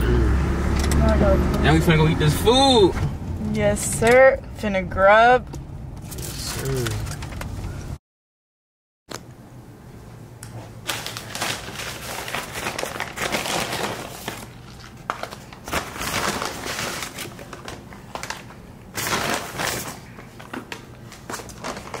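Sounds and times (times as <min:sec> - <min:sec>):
paper bags crinkling: 0:06.1 - 0:07.4, 0:10.8 - 0:22.0.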